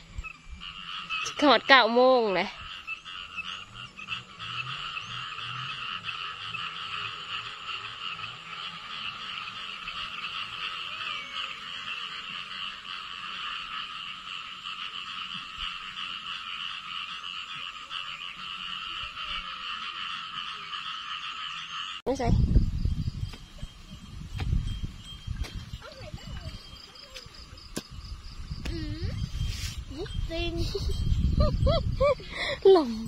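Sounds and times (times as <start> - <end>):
deep frog croak: 0.0 - 23.2
frogs trilling in chorus: 0.0 - 33.0.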